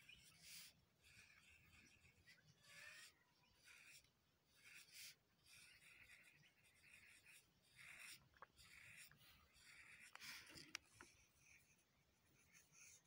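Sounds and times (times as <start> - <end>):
pencil scratching on paper: 0.0 - 13.0.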